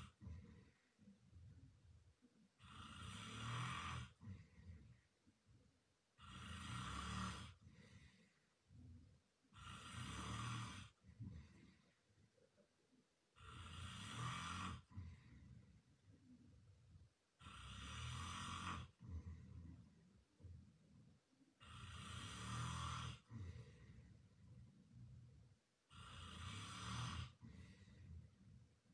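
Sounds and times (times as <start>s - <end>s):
man snoring loudly: 2.6s - 4.2s, 6.2s - 7.6s, 9.6s - 11.0s, 13.4s - 15.0s, 17.4s - 19.1s, 21.6s - 23.4s, 25.9s - 27.5s.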